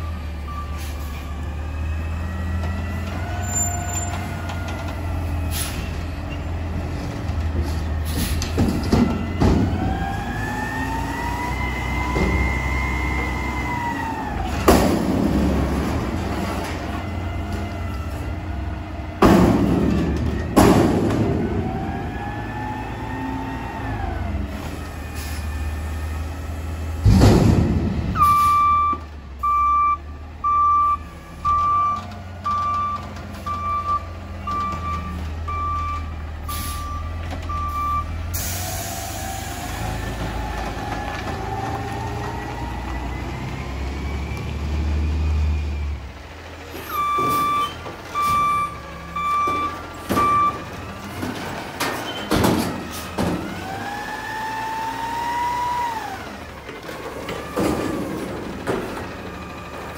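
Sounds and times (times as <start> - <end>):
heavy clunk: 7.0 - 9.9, 19.2 - 21.7, 27.0 - 28.4, 49.3 - 53.6, 56.7 - 59.9
metal bangs: 19.2 - 21.8, 27.0 - 28.4
truck engine running: 26.0 - 59.9
reversing beeper: 28.2 - 38.2, 46.8 - 50.7.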